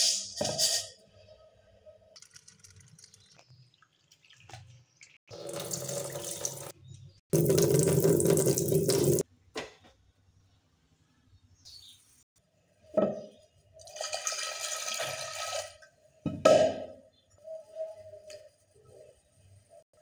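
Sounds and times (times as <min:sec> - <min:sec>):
water splashing into steel bowl: 0:07.4 - 0:09.2.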